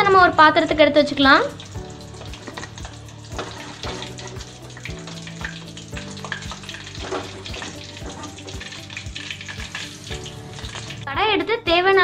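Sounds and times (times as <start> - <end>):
hot oil sizzling: 0.0 - 11.6
background music with steady beat: 0.0 - 12.0.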